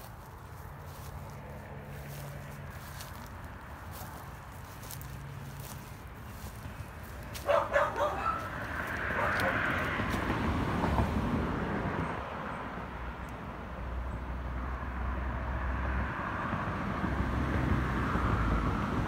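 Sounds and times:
low outdoor background rumble: 0:00.0 - 0:11.8.

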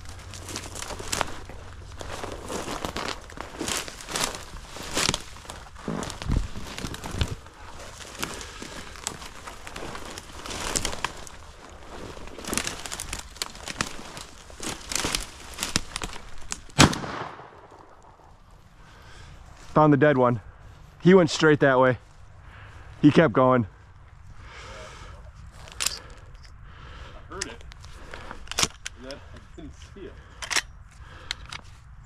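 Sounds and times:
twigs scraping against clothing: 0:00.0 - 0:19.7, 0:25.3 - 0:26.6, 0:27.3 - 0:29.5
footsteps crunching through snow: 0:00.0 - 0:23.1
sharp crack: 0:12.4 - 0:18.3.

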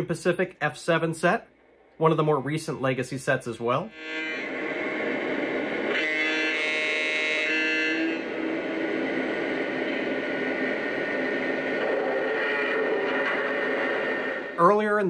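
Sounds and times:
locomotive horn: 0:03.9 - 0:05.0, 0:05.8 - 0:13.6.

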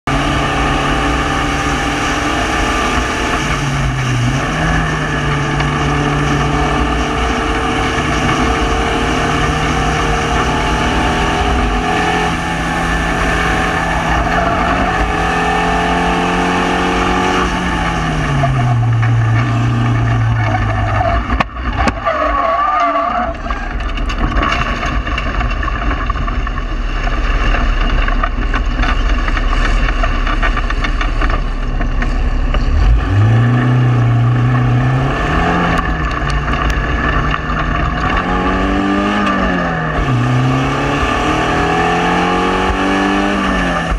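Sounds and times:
race car engine running hard: 0:00.0 - 0:22.1, 0:23.0 - 0:43.9
rumble of rough ground: 0:00.0 - 0:43.9.

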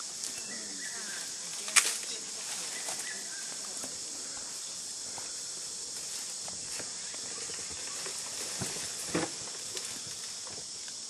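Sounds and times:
brush rustling: 0:00.0 - 0:10.8
steady high hiss: 0:00.0 - 0:11.0
twig snapping: 0:01.7 - 0:02.1.

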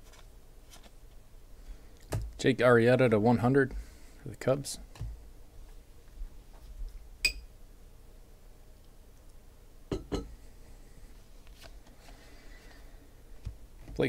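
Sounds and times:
soft card handling noise: 0:00.0 - 0:01.2, 0:11.1 - 0:14.0.

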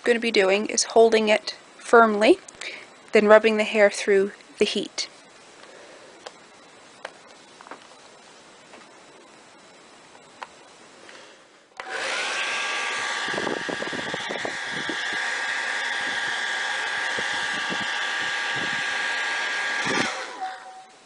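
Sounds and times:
hair dryer blowing: 0:11.8 - 0:20.7.

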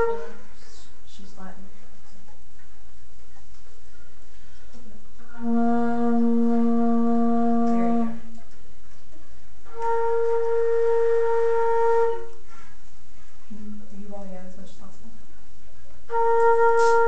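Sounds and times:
flutes playing long held notes: 0:00.0 - 0:00.8, 0:05.2 - 0:08.6, 0:09.5 - 0:13.4, 0:15.7 - 0:17.0.

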